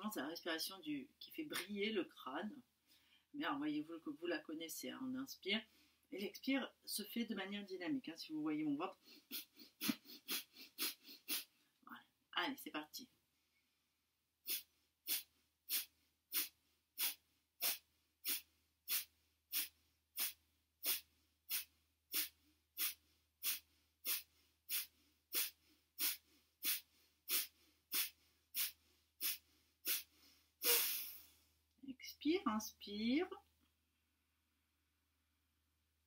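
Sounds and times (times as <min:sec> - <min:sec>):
forceful nasal exhalations: 0:09.0 - 0:11.7, 0:14.4 - 0:31.5.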